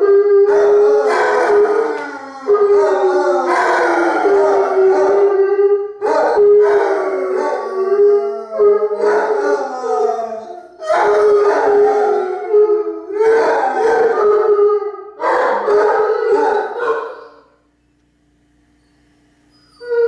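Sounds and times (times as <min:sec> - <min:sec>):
dogs howling together: 0:00.0 - 0:17.4, 0:19.8 - 0:20.0.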